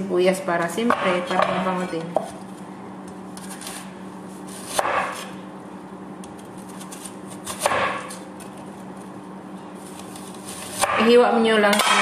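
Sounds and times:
knife slicing onion on board: 0:04.5 - 0:05.4, 0:06.6 - 0:08.5, 0:10.4 - 0:11.1.

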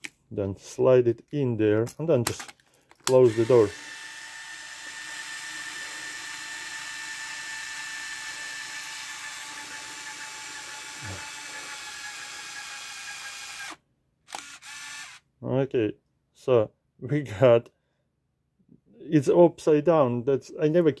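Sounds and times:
camera film winding motor whine: 0:03.1 - 0:15.2.

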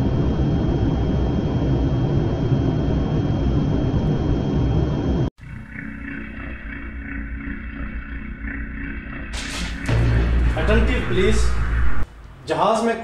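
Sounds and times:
jet engines deep rumble: 0:00.0 - 0:05.3, 0:08.4 - 0:12.6.

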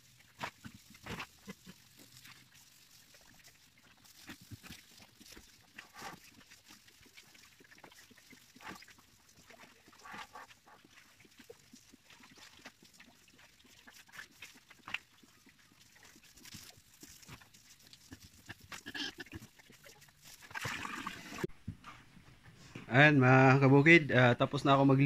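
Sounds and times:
pigs grunting: 0:18.4 - 0:19.7.

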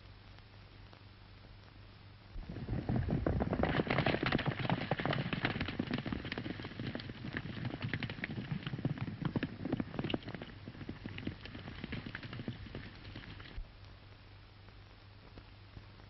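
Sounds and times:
horses galloping hoofbeats: 0:02.4 - 0:13.6.

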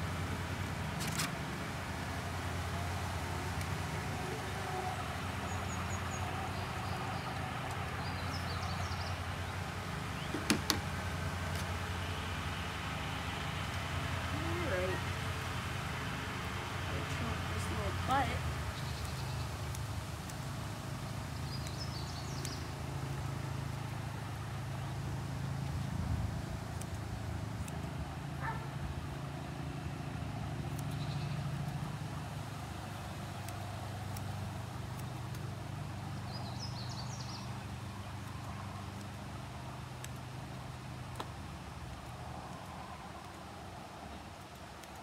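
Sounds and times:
low motor hum: 0:00.0 - 0:43.1
faint clicks: 0:21.4 - 0:22.6, 0:32.9 - 0:35.5, 0:44.3 - 0:45.0.

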